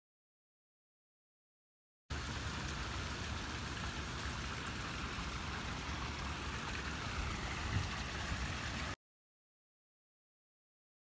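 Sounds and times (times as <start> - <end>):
fountain water splashing: 2.1 - 9.0.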